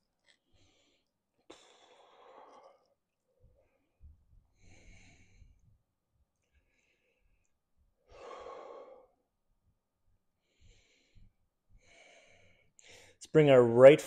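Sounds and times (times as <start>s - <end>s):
faint breathing: 0.3s - 5.8s, 6.4s - 9.3s, 10.4s - 13.2s.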